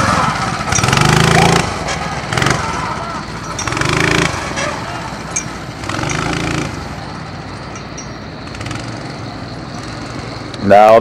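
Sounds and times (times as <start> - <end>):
small engine revving: 0.0 - 11.0.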